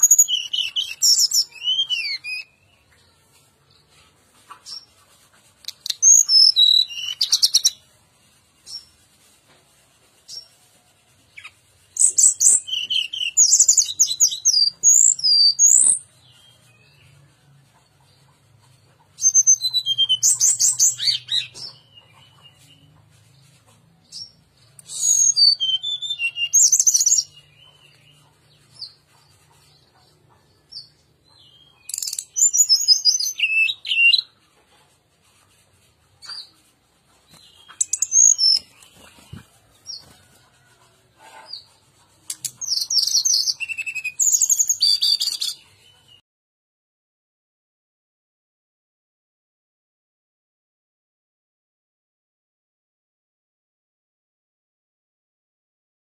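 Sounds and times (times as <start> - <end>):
bird twittering song: 5.6 - 7.8, 11.4 - 17.2, 24.2 - 34.4, 37.3 - 40.2, 42.3 - 46.0.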